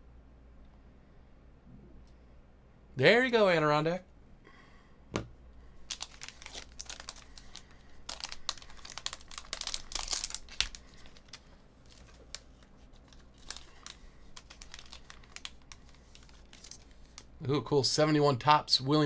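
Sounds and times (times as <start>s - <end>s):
foil wrapper crinkling: 5.8s - 17.4s.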